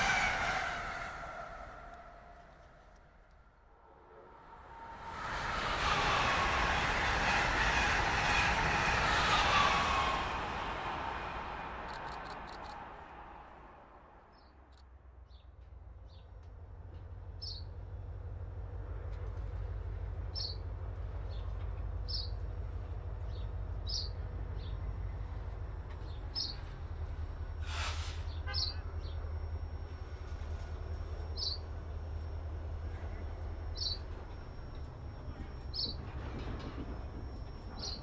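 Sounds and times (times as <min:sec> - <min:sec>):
diesel locomotive rumble: 0:00.0 - 0:14.3, 0:15.0 - 0:38.0
brief hiss: 0:27.6 - 0:28.4.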